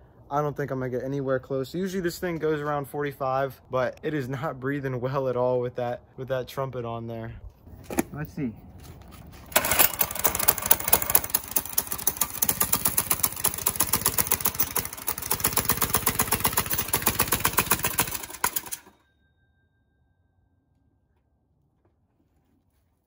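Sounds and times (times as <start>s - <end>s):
go-kart engine exhaust pulses: 9.3s - 18.9s.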